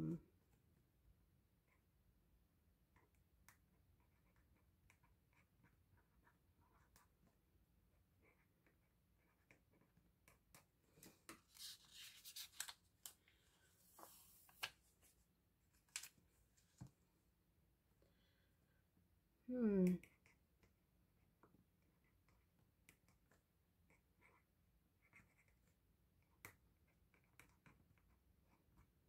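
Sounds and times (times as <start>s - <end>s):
scratchy rustling: 11.4s - 12.8s.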